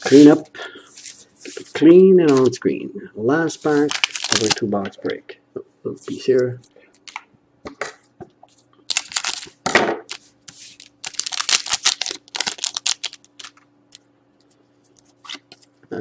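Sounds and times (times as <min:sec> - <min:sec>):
foil wrapper crinkling and tearing: 0:03.6 - 0:04.8, 0:08.9 - 0:13.6.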